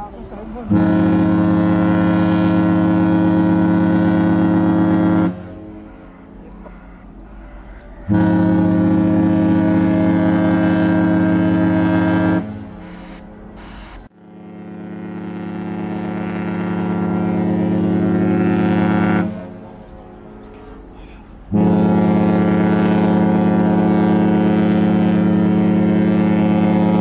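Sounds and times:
deep ship's horn blasts: 0:00.6 - 0:27.0.

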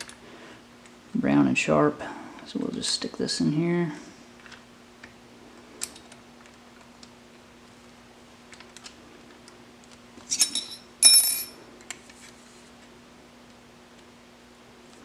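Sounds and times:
steady low hum: 0:00.0 - 0:15.0
metallic clinks: 0:10.3 - 0:11.6.

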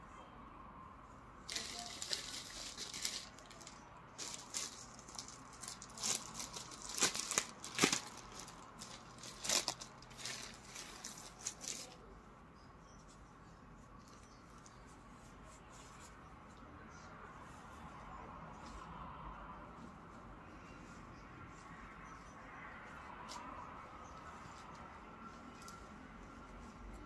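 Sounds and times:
plastic bag crinkling: 0:01.5 - 0:12.0.

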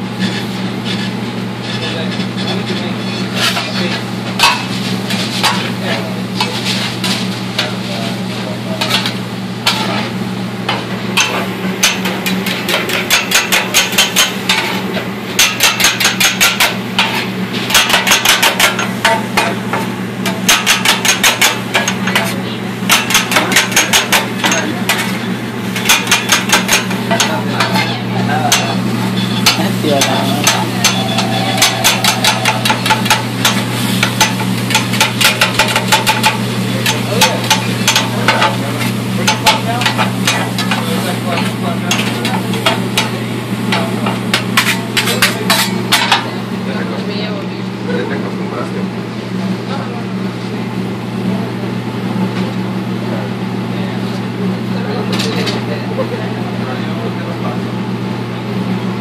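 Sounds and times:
steady low hum: 0:00.0 - 0:52.1
metal spatulas clanking on griddle: 0:00.2 - 0:07.8, 0:08.8 - 0:10.0, 0:10.7 - 0:46.3, 0:55.1 - 0:55.7
meat sizzling: 0:28.5 - 0:36.7.

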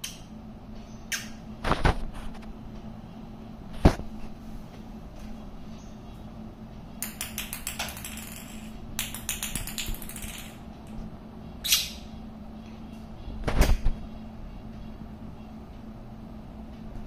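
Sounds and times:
plastic ball tapping on marble: 0:07.0 - 0:10.6.

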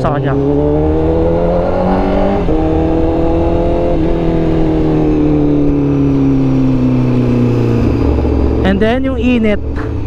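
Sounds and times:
motorcycle engine slowing down: 0:04.0 - 0:10.0.

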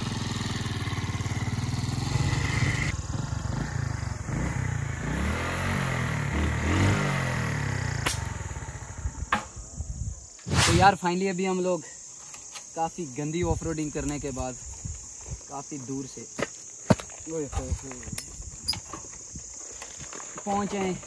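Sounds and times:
motorcycle engine on dirt track: 0:00.0 - 0:09.6.

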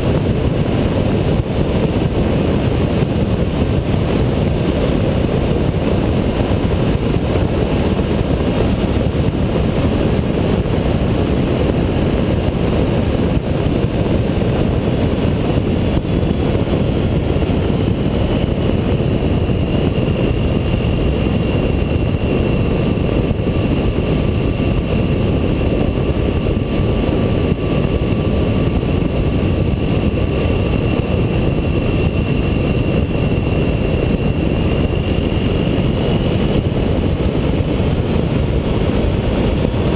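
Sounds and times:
wind rushing on microphone: 0:00.0 - 0:39.9.

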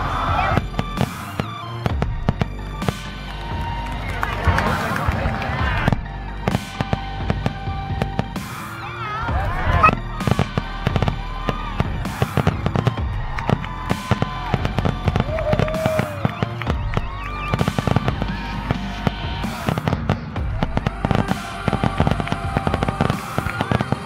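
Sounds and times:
fireworks bursting and crackling: 0:00.0 - 0:24.0.

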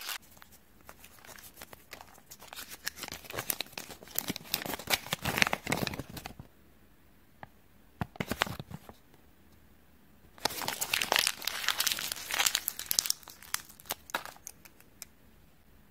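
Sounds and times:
paper crinkling: 0:00.0 - 0:06.5, 0:10.4 - 0:14.9.

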